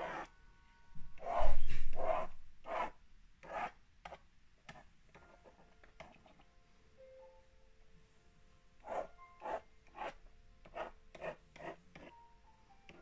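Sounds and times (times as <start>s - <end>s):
pen scratching drawing board: 0.0s - 0.3s, 1.1s - 6.4s, 8.9s - 12.1s.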